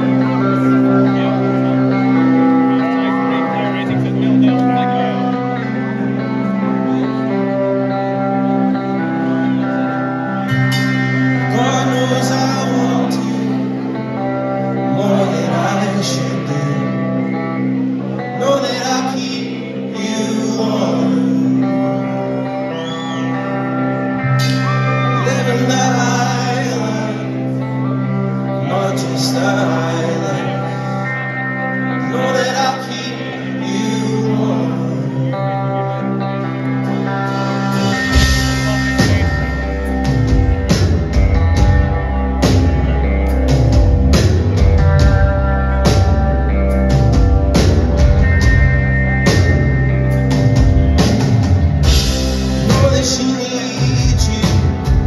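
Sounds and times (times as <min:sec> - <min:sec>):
electric guitar chords: 0:00.0 - 0:55.0
man singing: 0:11.4 - 0:22.6, 0:24.6 - 0:37.2, 0:51.8 - 0:55.0
drums and bass beat: 0:37.3 - 0:55.0.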